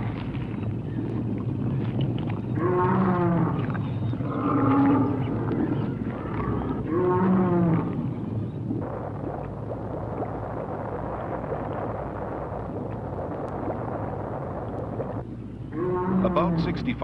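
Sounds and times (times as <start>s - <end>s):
low rumble: 0.0s - 17.0s
dinosaur roar: 2.6s - 3.6s, 4.2s - 8.0s, 15.7s - 16.8s.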